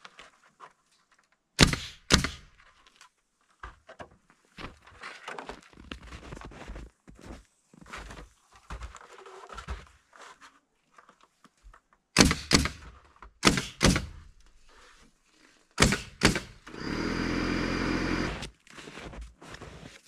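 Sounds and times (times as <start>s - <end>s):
nail gun firing: 1.6s - 2.5s, 12.2s - 14.3s, 15.8s - 18.5s
air compressor humming: 16.3s - 18.4s.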